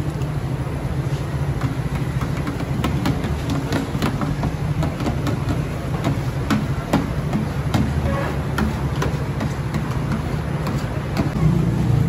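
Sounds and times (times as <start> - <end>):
low engine-like hum: 8.0 - 12.0.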